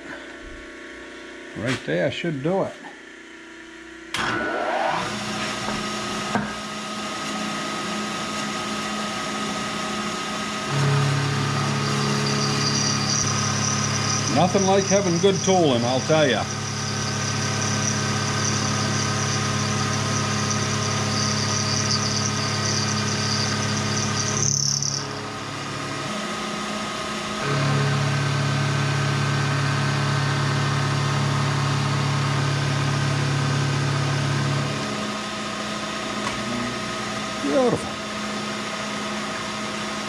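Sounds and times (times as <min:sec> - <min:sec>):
lower motor hum: 0:00.0 - 0:40.0
milling machine motor humming: 0:04.9 - 0:40.0
high-pitched metal cutting tone: 0:10.8 - 0:26.2.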